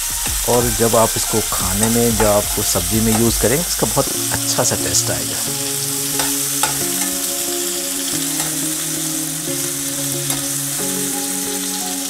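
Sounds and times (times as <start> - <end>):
food sizzling in hot oil: 0.0 - 12.0
spatula scraping pan: 0.5 - 4.6, 6.0 - 7.4
spatula knocking on pan: 1.5 - 3.5.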